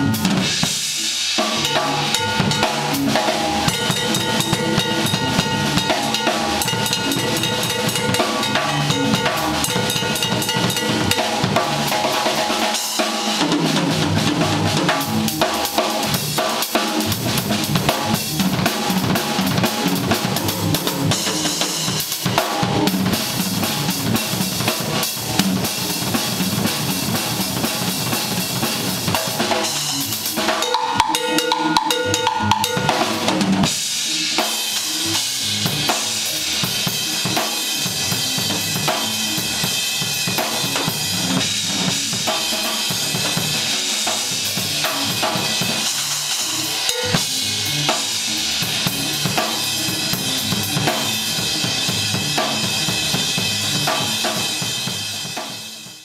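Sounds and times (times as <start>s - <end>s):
acoustic drum kit playing fast: 0.0s - 56.0s
cymbals: 0.0s - 56.0s.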